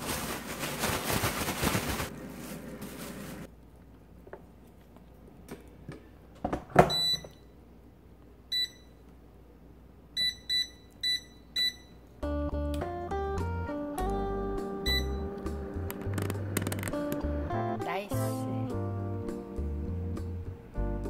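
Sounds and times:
background music: 12.2 - 21.0.

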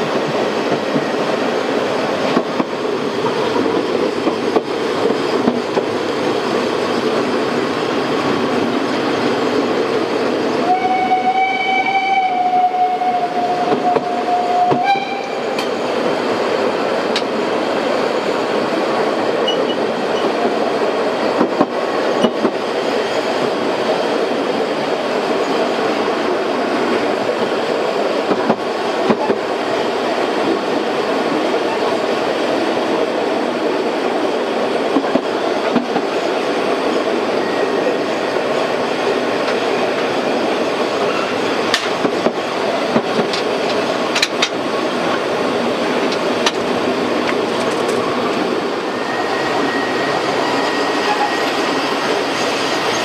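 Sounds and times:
train wheels rumbling and clattering: 0.0 - 11.4, 12.4 - 53.0
steam locomotive whistle: 10.6 - 15.6, 48.9 - 51.7.

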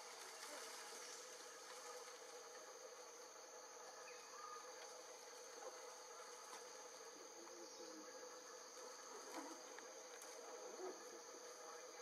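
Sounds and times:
insects buzzing: 0.0 - 12.0.

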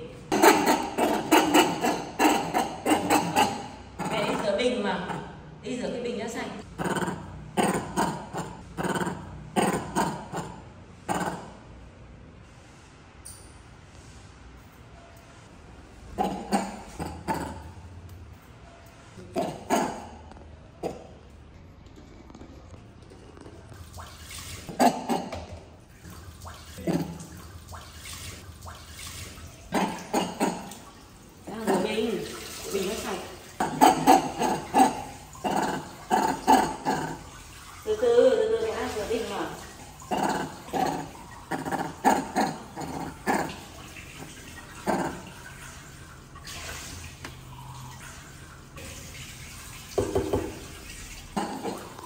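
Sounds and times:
tap water running into sink: 25.3 - 35.4, 43.2 - 52.0.

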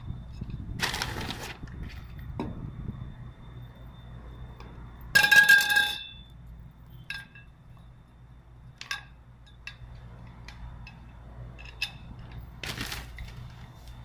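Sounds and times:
metal frame parts clinking: 8.8 - 13.3.

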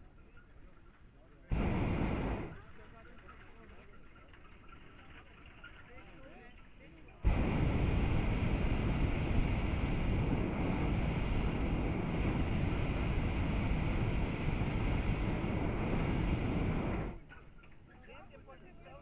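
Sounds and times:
propane burner blast: 1.5 - 2.7, 7.2 - 17.2.

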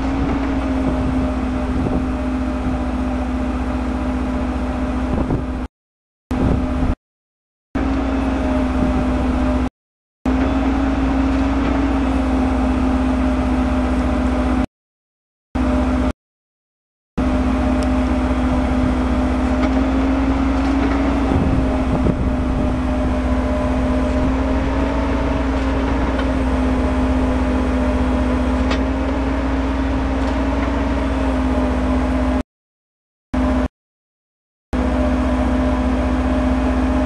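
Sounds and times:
drilling rig droning: 0.0 - 5.7, 7.8 - 9.7, 10.3 - 14.7, 17.2 - 32.4, 34.8 - 37.0.

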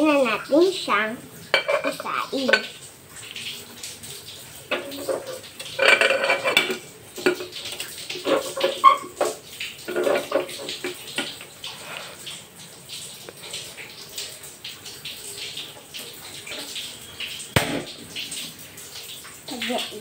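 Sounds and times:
pot and lid clattering on metal: 1.5 - 2.8, 4.7 - 11.5.

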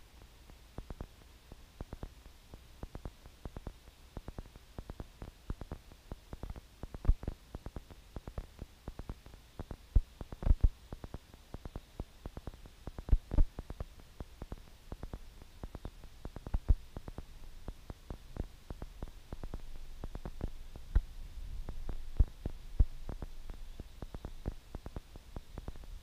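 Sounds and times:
faint low rumble: 0.0 - 26.0
low thumps and crackles: 13.0 - 26.0.

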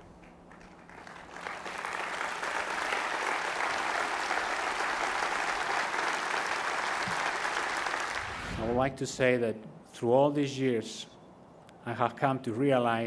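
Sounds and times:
audience applauding: 0.0 - 8.6.

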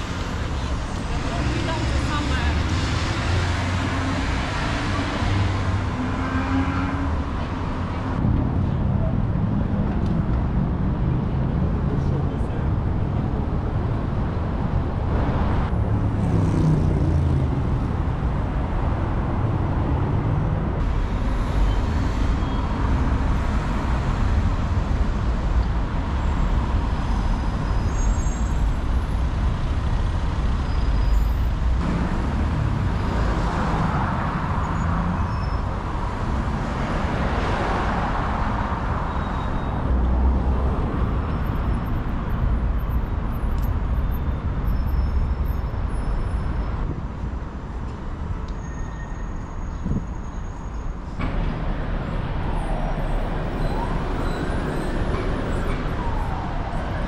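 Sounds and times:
traffic rumble: 0.0 - 57.0
vehicle passing loudly: 15.2 - 18.1.

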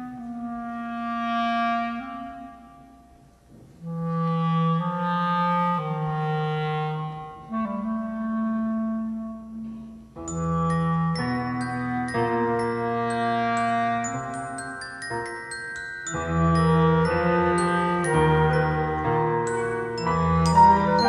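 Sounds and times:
clarinet playing slow melody: 0.0 - 21.0
low sustained accompaniment: 9.2 - 21.0.

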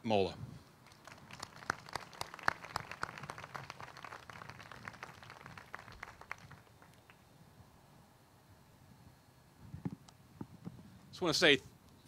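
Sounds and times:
light applause: 0.8 - 7.2.

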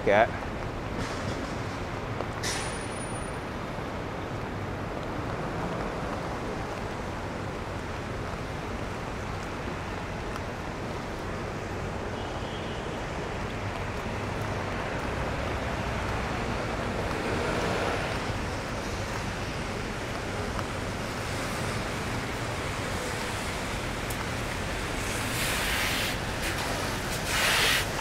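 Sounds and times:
tyres hissing on wet road: 0.1 - 28.0.

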